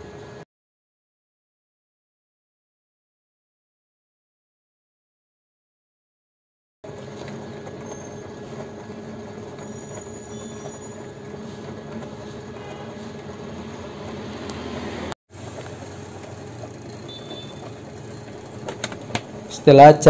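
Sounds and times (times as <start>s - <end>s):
tinting machine motor hum: 6.9s - 20.0s.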